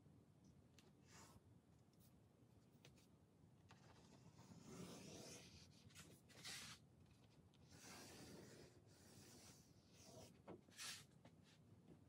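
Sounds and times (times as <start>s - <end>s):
pencil scratching on wood: 3.9s - 6.8s, 7.6s - 11.0s.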